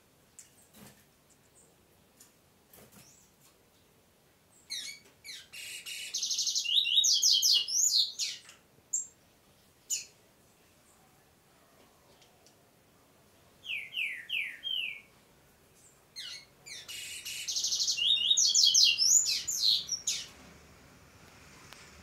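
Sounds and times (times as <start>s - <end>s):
bird singing: 4.6s - 9.2s, 13.6s - 15.1s, 15.8s - 20.4s.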